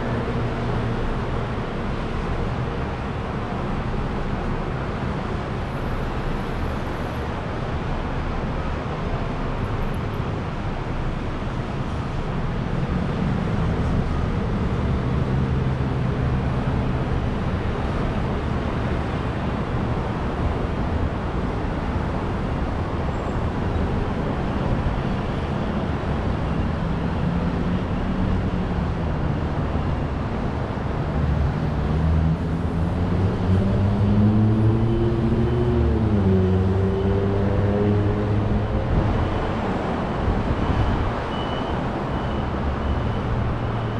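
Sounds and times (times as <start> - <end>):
road traffic noise: 0.0 - 43.9
vehicle engine accelerating: 31.2 - 39.1.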